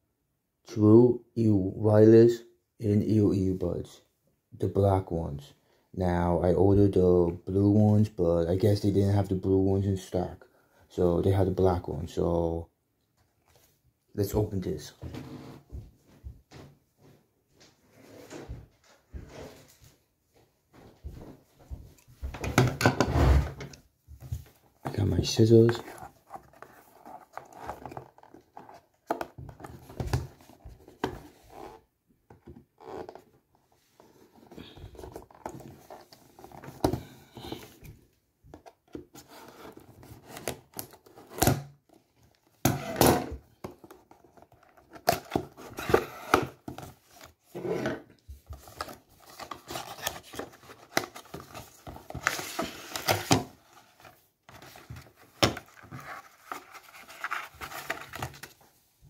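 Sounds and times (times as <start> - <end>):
hands rustling packaging: 48.5 - 58.8.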